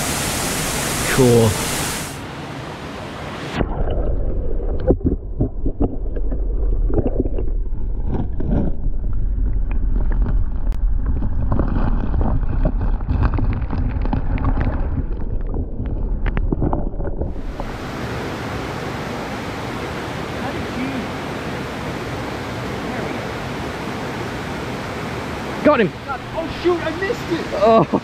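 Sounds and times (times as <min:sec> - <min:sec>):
creek rushing: 0:00.0 - 0:03.6, 0:17.3 - 0:28.0
muffled underwater stream rush: 0:00.0 - 0:27.7.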